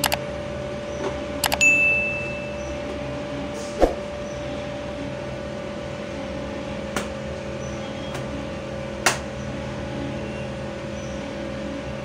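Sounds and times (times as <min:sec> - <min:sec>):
steady hum: 0:00.0 - 0:06.9.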